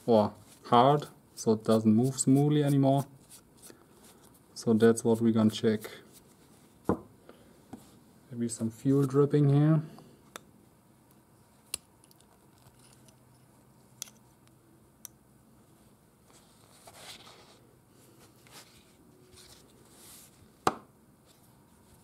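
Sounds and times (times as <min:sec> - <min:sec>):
soft scrapes on cloth: 0:15.6 - 0:20.5.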